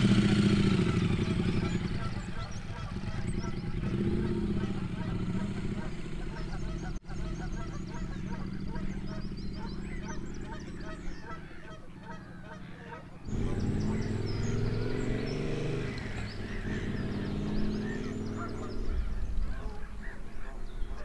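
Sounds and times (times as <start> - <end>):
geese honking: 0.0 - 21.0
motorcycle engine running: 0.0 - 21.0.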